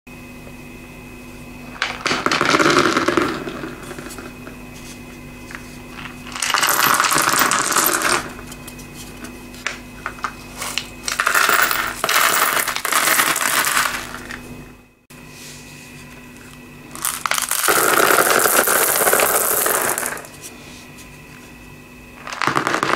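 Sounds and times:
beads clattering on hard floor: 0:01.7 - 0:04.4, 0:05.5 - 0:08.5, 0:10.1 - 0:14.4, 0:16.9 - 0:20.3, 0:22.2 - 0:22.9.

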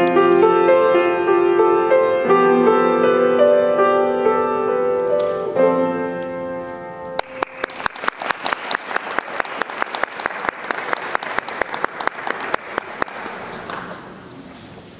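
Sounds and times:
piano chord ringing: 0:00.0 - 0:07.3
audience applauding: 0:07.2 - 0:14.3.

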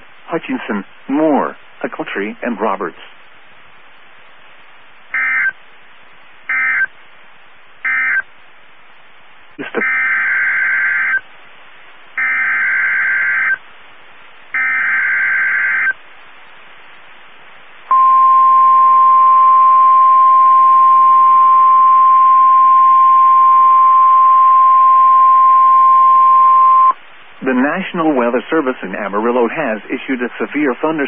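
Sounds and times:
buzzy digital data bursts: 0:05.0 - 0:05.6, 0:06.4 - 0:06.9, 0:09.8 - 0:11.2, 0:12.2 - 0:13.6, 0:14.5 - 0:16.0
steady warning alarm tone: 0:05.0 - 0:05.6, 0:06.5 - 0:06.9, 0:07.8 - 0:08.3, 0:09.8 - 0:11.2, 0:12.2 - 0:13.6, 0:14.5 - 0:16.0, 0:17.9 - 0:27.0.

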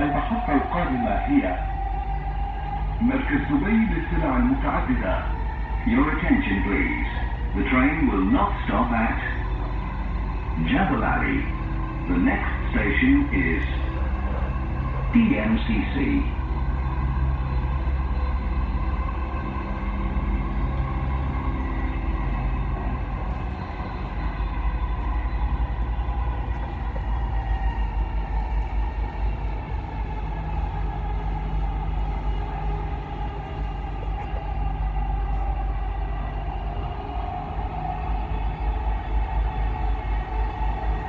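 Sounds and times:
train rumbling: 0:00.0 - 0:41.0
train whine: 0:00.0 - 0:41.0.

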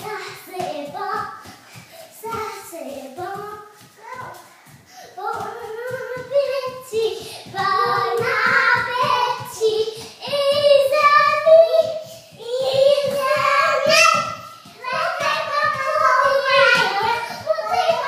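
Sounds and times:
quick footsteps on hard floor: 0:00.0 - 0:18.0
child singing high notes: 0:10.2 - 0:18.0.

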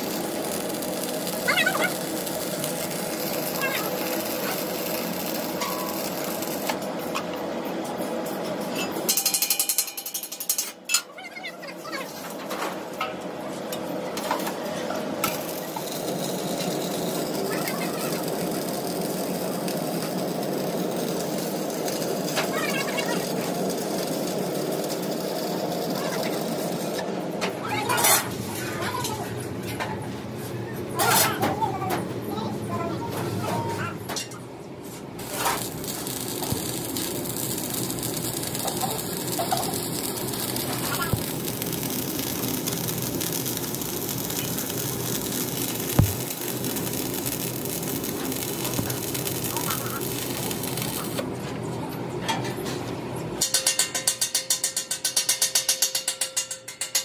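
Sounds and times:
welding arc crackling: 0:00.0 - 0:07.2, 0:15.2 - 0:27.1, 0:35.1 - 0:51.2.

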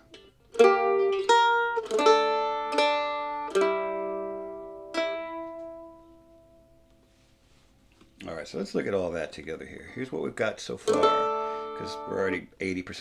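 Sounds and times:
mandolin plucked notes: 0:00.0 - 0:07.0, 0:10.2 - 0:12.5.

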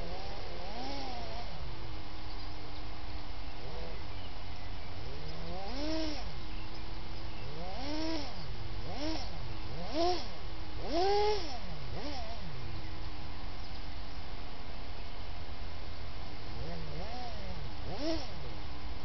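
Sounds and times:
electric motors whining: 0:05.1 - 0:06.4, 0:07.4 - 0:12.5, 0:16.6 - 0:18.4
steady low rumble: 0:11.5 - 0:19.0.

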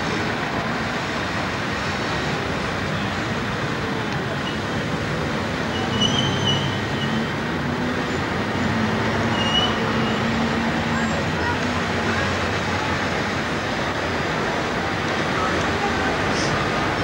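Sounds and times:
tram and traffic rumble: 0:00.0 - 0:17.0
tram wheel squeals: 0:05.6 - 0:07.3, 0:09.3 - 0:10.3.

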